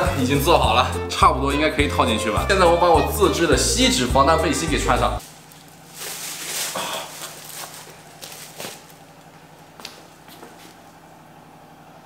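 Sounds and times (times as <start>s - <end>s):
aluminium foil crinkling: 5.2s - 9.3s.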